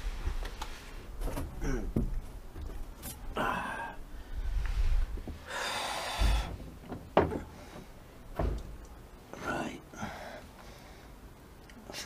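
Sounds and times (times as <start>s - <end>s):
man breathing hard: 3.4s - 6.6s, 9.9s - 11.3s.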